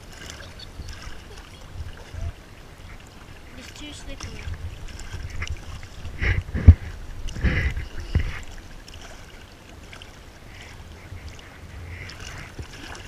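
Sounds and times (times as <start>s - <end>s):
water sloshing over rock: 0.0s - 13.0s
low thumps: 4.4s - 8.6s.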